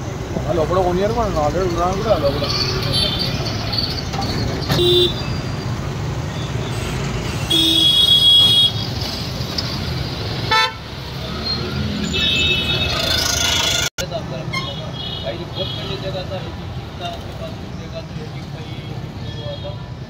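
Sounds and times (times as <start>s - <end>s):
rumble of engines: 0.0s - 20.0s
vehicle horns honking: 4.7s - 5.3s, 7.4s - 8.9s, 10.5s - 10.9s, 12.0s - 16.0s.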